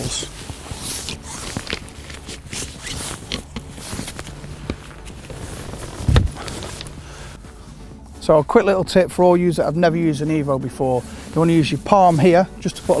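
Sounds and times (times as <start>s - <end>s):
fabric rustling and scraping: 0.0s - 13.0s
heavy thump: 6.0s - 6.4s.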